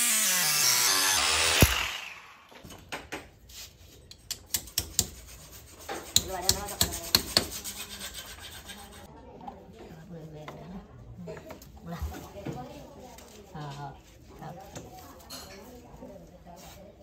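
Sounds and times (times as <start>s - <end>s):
power tool running down: 0.0s - 2.5s.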